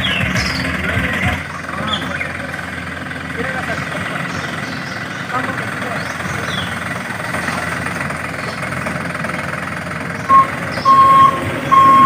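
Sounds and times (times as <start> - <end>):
simulated truck engine running: 0.0 - 12.0
reversing beeper: 10.3 - 12.0.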